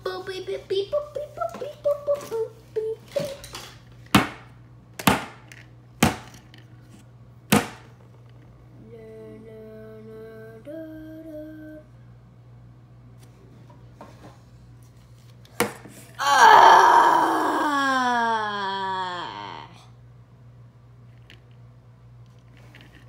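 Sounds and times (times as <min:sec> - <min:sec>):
plastic toys knocking on wooden table: 0:04.1 - 0:06.5, 0:07.5 - 0:07.9
steady hum of held pitches: 0:06.6 - 0:14.8, 0:16.0 - 0:22.3.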